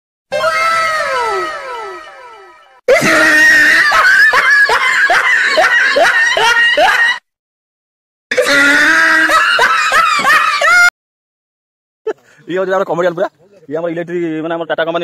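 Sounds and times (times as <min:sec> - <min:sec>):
high-pitched sped-up laughter: 0:00.6 - 0:07.2, 0:08.7 - 0:10.9.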